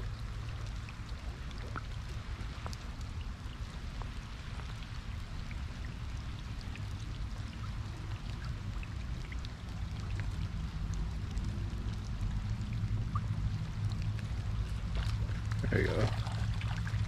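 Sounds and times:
raindrops ticking: 0.0 - 17.0
river water rushing: 14.2 - 17.0.

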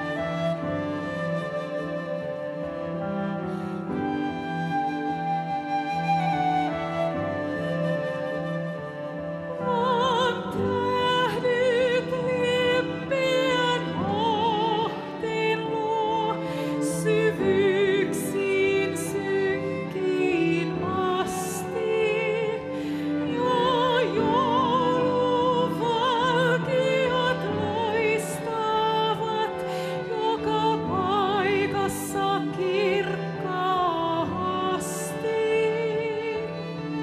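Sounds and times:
soprano singing with vibrato: 9.5 - 37.0.

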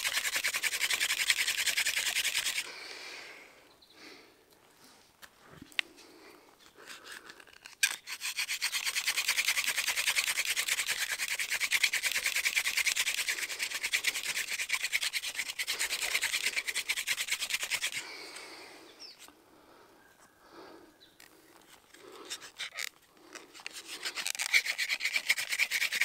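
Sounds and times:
wood rasping on wood: 0.0 - 2.7, 6.8 - 18.1, 21.7 - 26.0.

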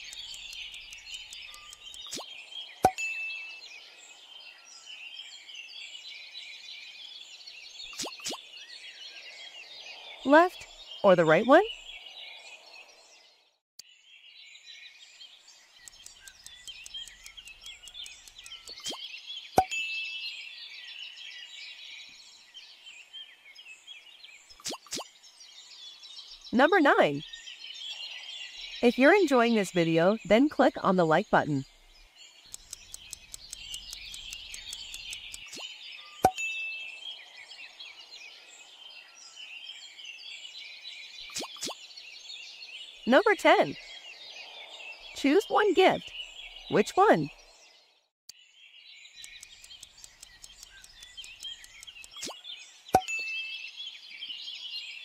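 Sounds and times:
rapid timer ticking: 0.0 - 2.2, 15.8 - 19.0, 31.6 - 35.6, 49.2 - 52.4
small birds chirping: 0.0 - 55.0
sharp pop with ringing tone: 2.1 - 3.0, 53.0 - 53.2.

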